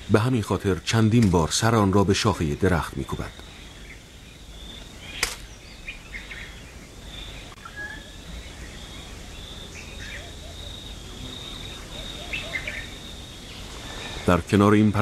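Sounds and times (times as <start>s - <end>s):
bird knocking prey on branch: 5.2s - 5.5s.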